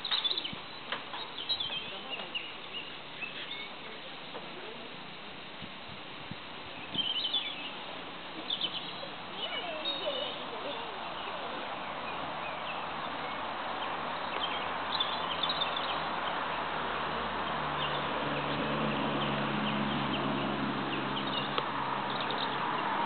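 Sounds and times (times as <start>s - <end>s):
high bird-like chirps: 0.0s - 2.5s, 6.8s - 7.7s
engine humming: 6.3s - 23.0s.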